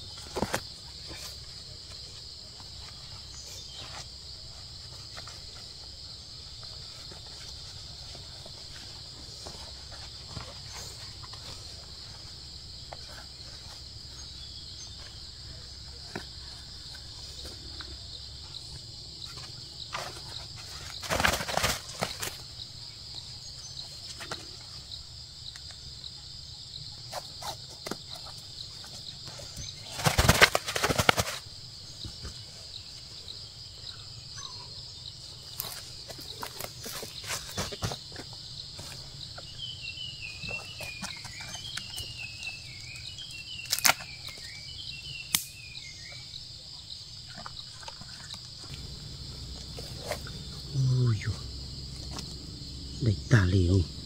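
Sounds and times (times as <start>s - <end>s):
insects buzzing: 0.0s - 54.0s
handling rustles: 19.2s - 22.5s, 27.1s - 32.4s
bird wings flapping: 20.8s - 22.4s, 29.8s - 31.5s.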